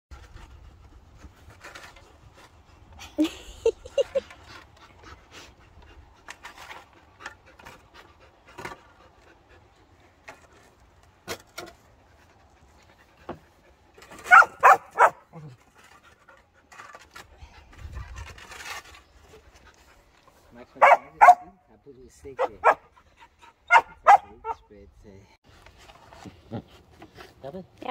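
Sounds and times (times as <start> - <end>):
shovel knocks and scrapes: 0.1 - 2.6, 6.2 - 9.2, 10.2 - 12.4, 13.2 - 20.0
puppy barking: 14.2 - 15.3, 20.8 - 21.5, 22.4 - 22.9, 23.7 - 24.6
puppy panting: 22.4 - 24.6.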